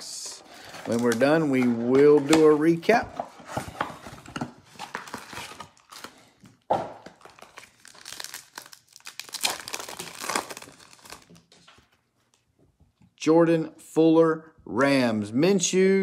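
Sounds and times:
foil wrapper crinkling and tearing: 4.7 - 6.3, 7.1 - 11.5.

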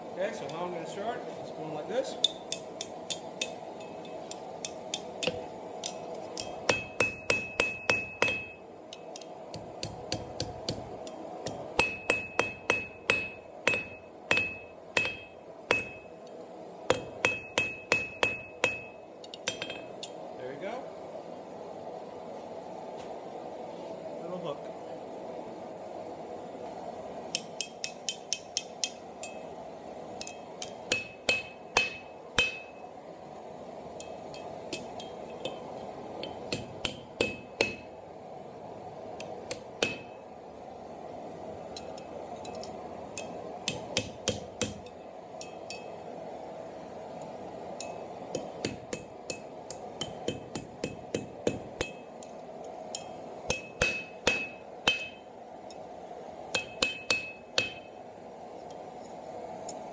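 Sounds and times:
hammer striking steel on anvil: 2.2 - 16.1, 16.9 - 20.2, 27.3 - 29.5, 30.2 - 32.9, 34.0 - 37.9, 39.2 - 40.2, 41.8 - 46.0, 47.8 - 52.3, 52.9 - 55.8, 56.5 - 58.0.

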